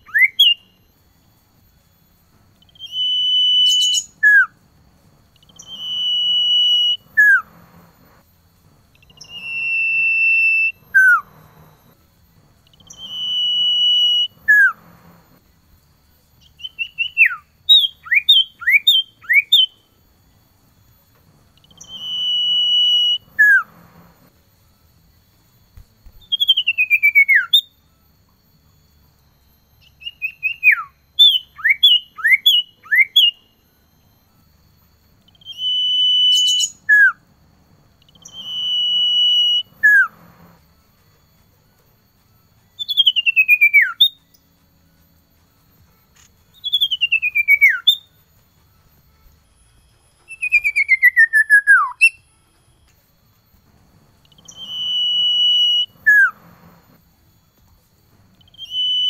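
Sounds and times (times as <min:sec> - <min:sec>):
bird whistling song: 0:00.0 - 0:00.8, 0:02.6 - 0:04.6, 0:05.3 - 0:07.6, 0:08.9 - 0:12.0, 0:12.6 - 0:15.2, 0:16.4 - 0:19.9, 0:21.5 - 0:24.2, 0:26.0 - 0:27.9, 0:29.8 - 0:33.6, 0:35.2 - 0:37.3, 0:38.0 - 0:40.6, 0:42.6 - 0:44.4, 0:46.5 - 0:48.2, 0:50.0 - 0:52.4, 0:54.2 - 0:56.9, 0:58.3 - 0:59.0.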